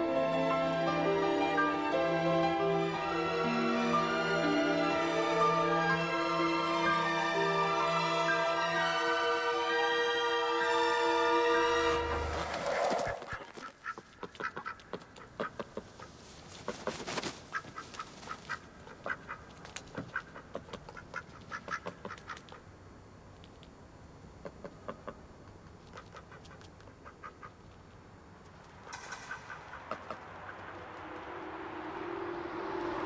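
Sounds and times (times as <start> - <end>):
music: 0.0 - 12.4
ducks quacking: 13.3 - 16.2, 17.5 - 22.6, 25.9 - 27.6.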